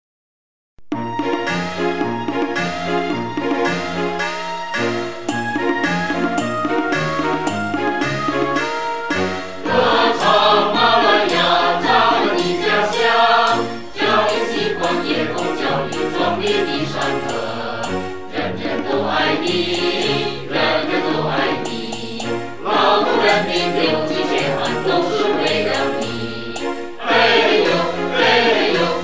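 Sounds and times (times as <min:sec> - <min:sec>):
choir singing with instruments: 0:06.7 - 0:29.0.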